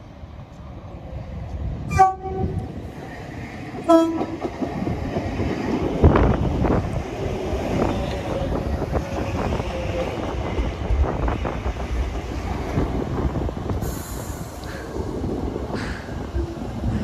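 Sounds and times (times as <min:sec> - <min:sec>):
train horn blasts: 0:01.9 - 0:02.6, 0:03.9 - 0:04.4.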